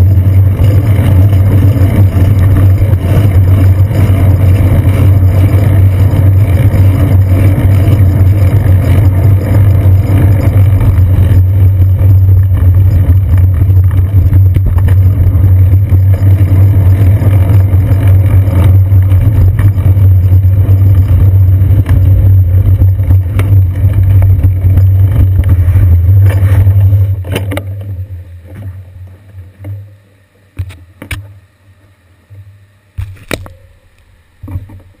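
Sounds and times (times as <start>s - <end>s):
bicycle riding rumble: 0.0s - 35.0s
knocks and clicks: 20.9s - 27.9s.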